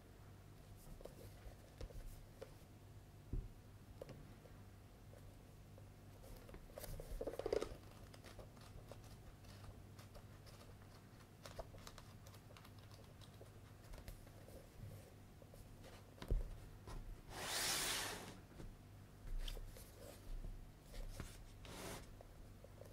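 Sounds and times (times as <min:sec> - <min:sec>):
book pages flipping: 0:06.4 - 0:14.3
loud paper rustling hiss: 0:17.3 - 0:18.4.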